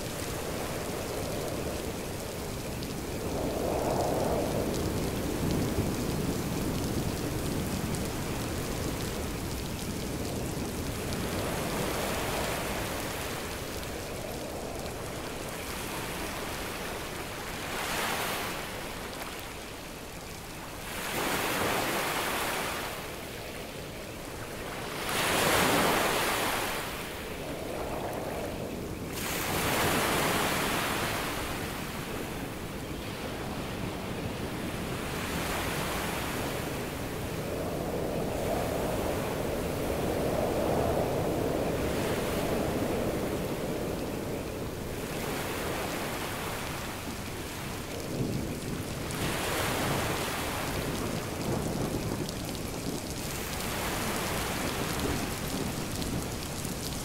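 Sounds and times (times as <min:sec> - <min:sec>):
rain: 0:00.0 - 0:57.0
ocean waves: 0:15.6 - 0:19.3, 0:20.8 - 0:23.1, 0:24.6 - 0:27.4, 0:29.2 - 0:37.4, 0:44.7 - 0:48.3, 0:49.0 - 0:51.6, 0:52.8 - 0:57.0.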